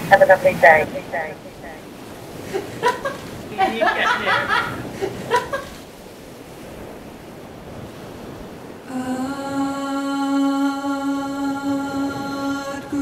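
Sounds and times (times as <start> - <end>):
wind noise: 0.0 - 10.0, 11.3 - 13.0.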